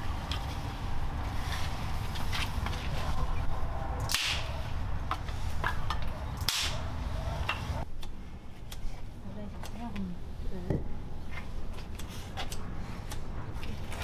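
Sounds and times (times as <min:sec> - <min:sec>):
loud sharp wood cracks: 0:04.0 - 0:04.5, 0:06.4 - 0:06.8.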